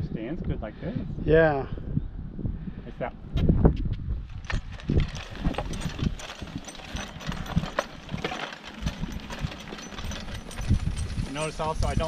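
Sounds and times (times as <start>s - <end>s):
wooden board scraping ground: 4.2s - 12.0s.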